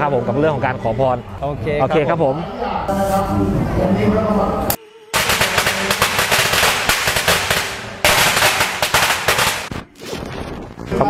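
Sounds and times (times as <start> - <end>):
firecrackers crackling in metal bin: 5.2 - 9.7.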